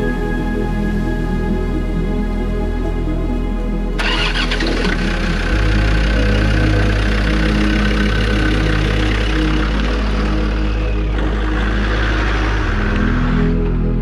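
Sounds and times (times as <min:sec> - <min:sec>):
car engine running: 0:04.0 - 0:14.0.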